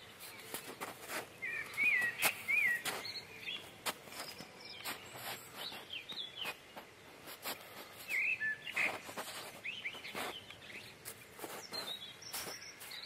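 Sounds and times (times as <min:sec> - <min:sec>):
bird chirps: 0:00.0 - 0:06.8, 0:07.9 - 0:13.0
footsteps crunching on snow: 0:00.2 - 0:13.0.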